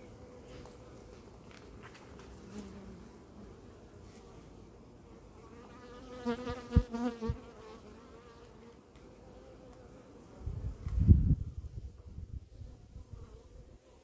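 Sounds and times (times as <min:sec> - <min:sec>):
honeybees buzzing: 0:05.0 - 0:10.6
bee flying close past: 0:05.4 - 0:14.0.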